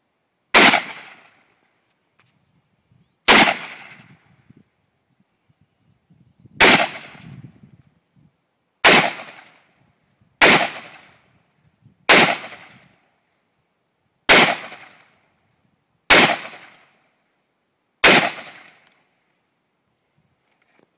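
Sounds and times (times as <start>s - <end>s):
rifle shots: 0.5s - 1.4s, 3.3s - 4.1s, 6.6s - 7.2s, 8.8s - 9.6s, 10.4s - 11.1s, 12.1s - 12.9s, 14.3s - 15.0s, 16.1s - 16.8s, 18.0s - 18.9s.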